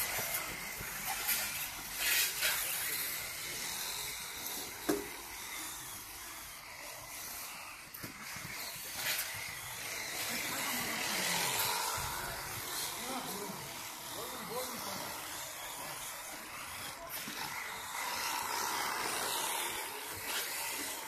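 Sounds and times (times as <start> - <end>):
small electric motors whining: 0.0 - 21.0.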